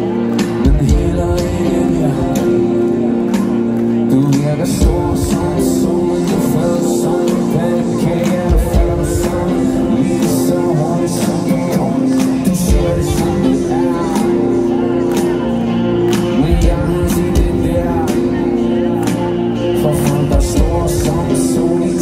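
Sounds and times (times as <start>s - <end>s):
person singing: 0.0s - 22.0s
rock band playing live: 0.0s - 22.0s
drum beat with kick drum: 16.2s - 18.4s.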